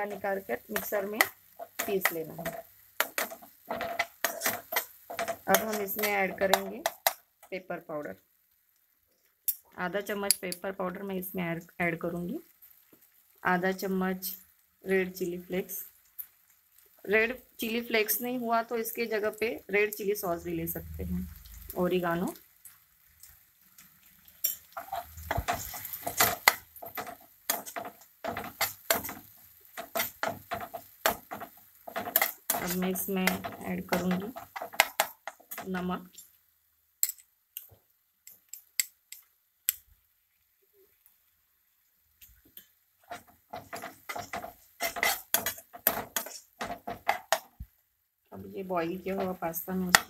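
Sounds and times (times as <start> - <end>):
spatula scraping a frying pan: 0.1 - 7.1, 22.6 - 36.4, 43.0 - 47.6.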